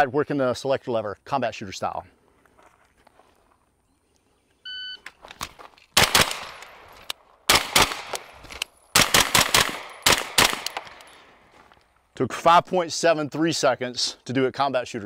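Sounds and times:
carbine gunshots: 6.0 - 11.1.

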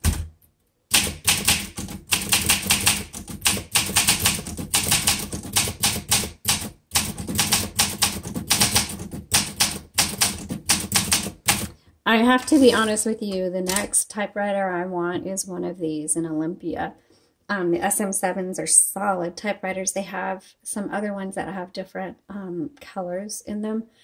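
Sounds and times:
typewriter keystrokes clacking: 0.0 - 11.7, 13.7 - 14.0.

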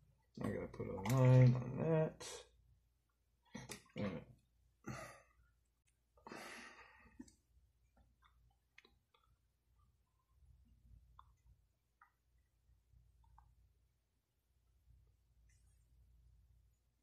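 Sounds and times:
person breathing: 6.2 - 7.3.

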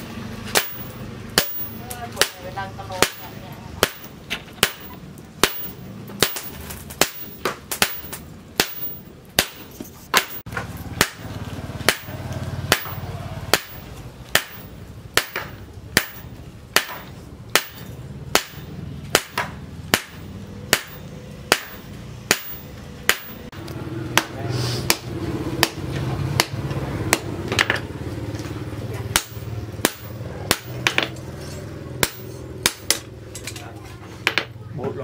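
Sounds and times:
hammer striking hot metal on anvil: 0.0 - 23.6, 29.1 - 33.1.

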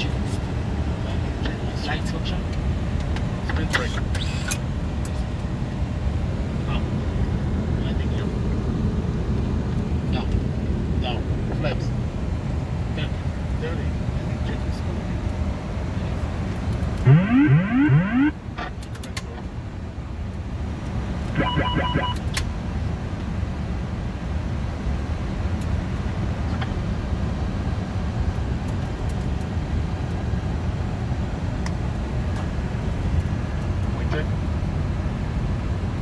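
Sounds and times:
airflow and engine hum: 0.0 - 36.0
rising wailing tones: 17.0 - 18.4, 21.4 - 22.2
short beeps: 21.4 - 22.2.

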